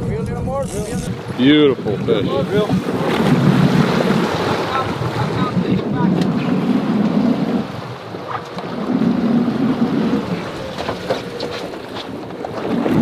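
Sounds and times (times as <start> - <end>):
water splashing against boat: 0.0 - 13.0
wind gusting on microphone: 0.0 - 13.0.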